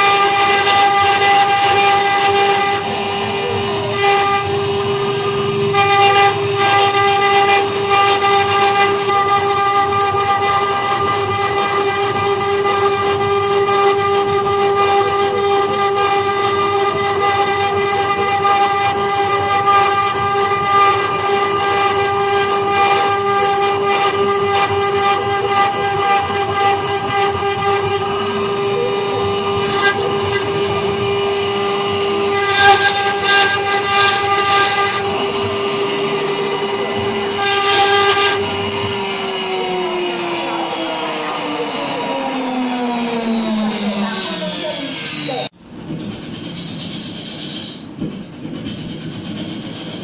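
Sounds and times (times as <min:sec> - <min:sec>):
wood being cut: 0:00.0 - 0:45.6
machine spindle whining: 0:00.0 - 0:50.0.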